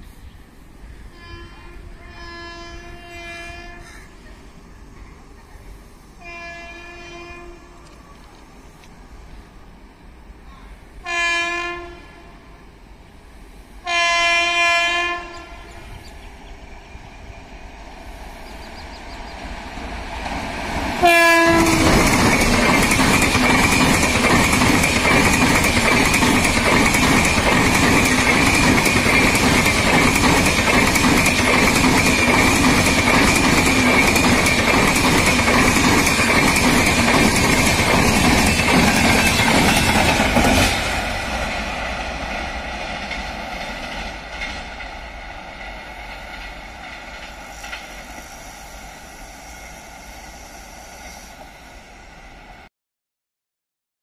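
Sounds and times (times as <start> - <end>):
train rail noise: 0.0 - 52.7
train horn: 1.1 - 4.2, 6.2 - 7.9, 11.0 - 12.6, 13.8 - 16.0, 21.0 - 22.1, 49.4 - 51.4
wheels clacking over rail joints: 19.0 - 48.2.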